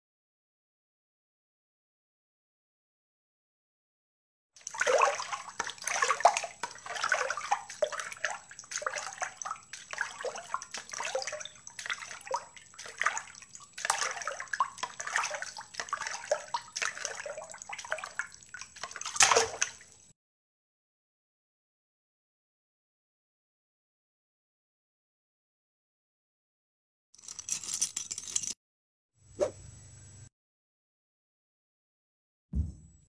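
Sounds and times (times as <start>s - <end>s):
water splashing and sloshing: 4.6s - 20.1s.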